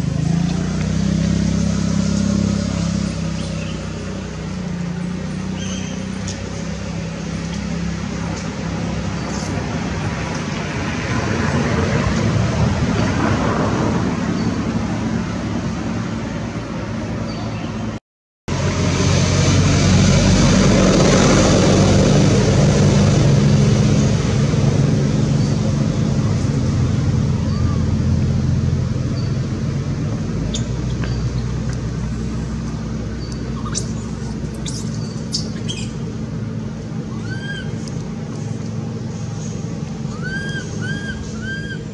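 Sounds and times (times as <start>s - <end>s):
outdoor rushing noise: 0.0s - 41.9s
high chirps and squeaks: 33.2s - 36.0s, 39.4s - 41.9s.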